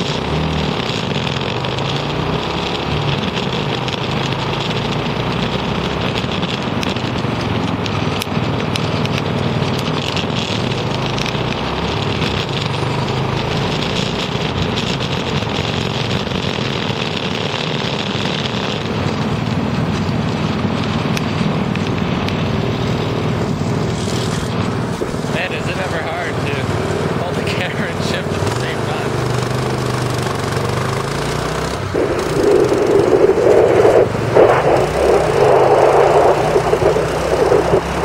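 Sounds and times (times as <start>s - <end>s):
go-kart engine running: 0.0s - 38.0s
wind noise on microphone: 13.8s - 27.7s, 30.5s - 38.0s.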